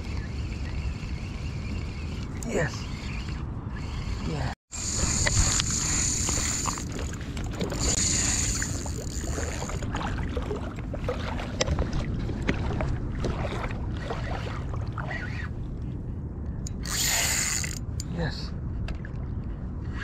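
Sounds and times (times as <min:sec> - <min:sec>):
fishing reel clicks and taps: 0:00.0 - 0:06.9, 0:07.8 - 0:09.6, 0:16.6 - 0:18.1
wind rumble on microphone: 0:00.0 - 0:20.0.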